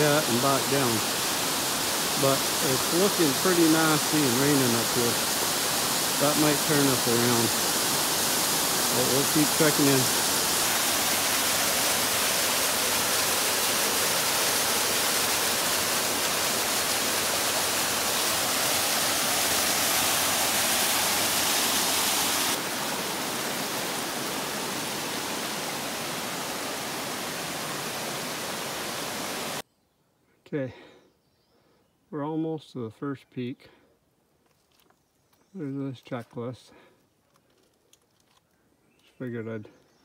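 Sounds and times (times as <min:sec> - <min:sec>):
waterfall rushing over rocks: 0:00.0 - 0:29.6.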